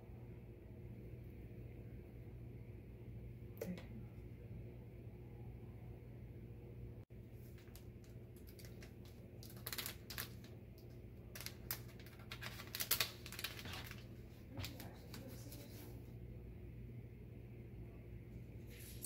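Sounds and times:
packet crinkling: 7.4 - 15.3.

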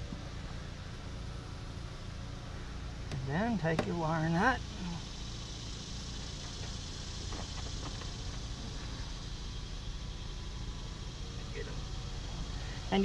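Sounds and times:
low rumble and hiss: 0.0 - 13.0.

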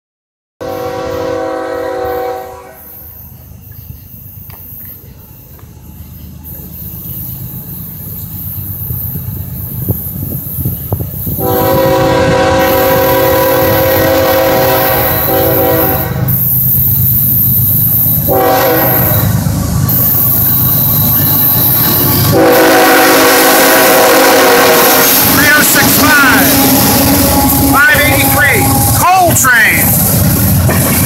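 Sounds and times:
locomotive air horn: 0.6 - 3.0, 11.3 - 16.5, 18.2 - 19.4, 22.0 - 29.0
train rumble: 0.6 - 31.0.

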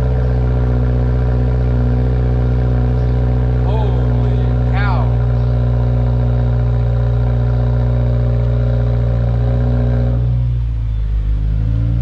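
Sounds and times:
car engine idling low rumble: 0.0 - 12.0.

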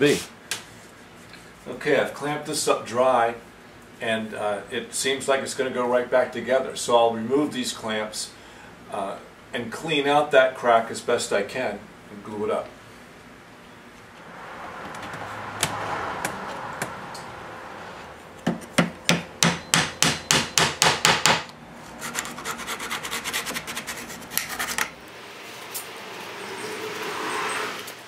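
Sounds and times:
knife scraping wood: 21.8 - 25.0.

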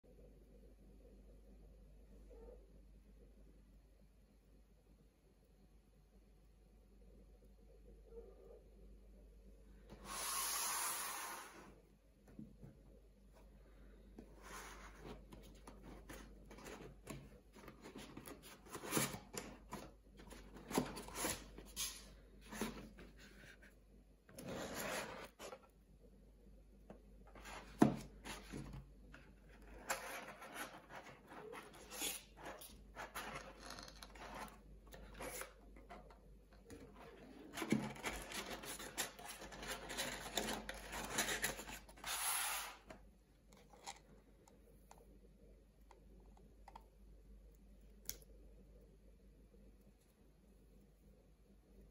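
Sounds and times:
cardboard rubbing and scraping: 24.4 - 25.6.

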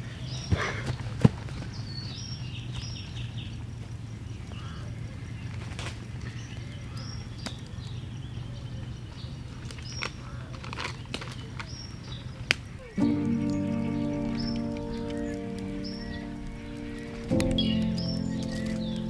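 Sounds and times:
birds chirping: 0.0 - 19.0
wood fire crackling: 9.7 - 19.0.

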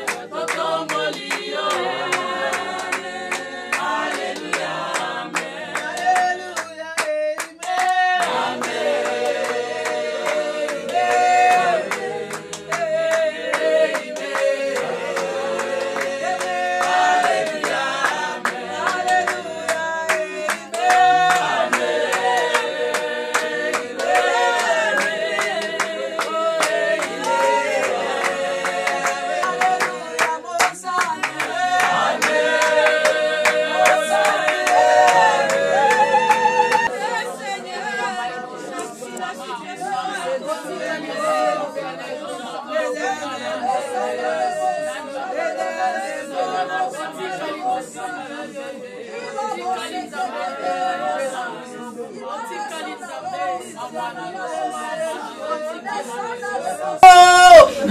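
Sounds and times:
hand clapping: 0.0 - 36.9
women singing together: 0.0 - 57.9.

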